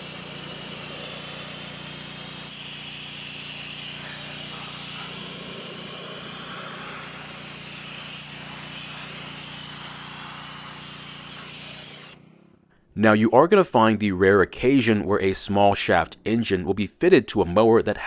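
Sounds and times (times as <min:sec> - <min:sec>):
pressure washer jet spraying: 0:00.0 - 0:12.5
pump motor hum: 0:00.0 - 0:12.6.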